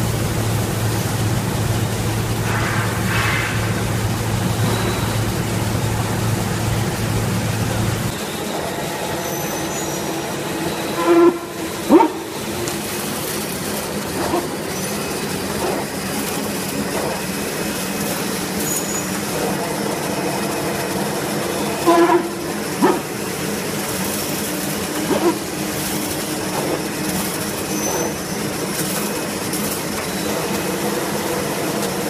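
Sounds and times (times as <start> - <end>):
machine line clatter: 0.0 - 32.0.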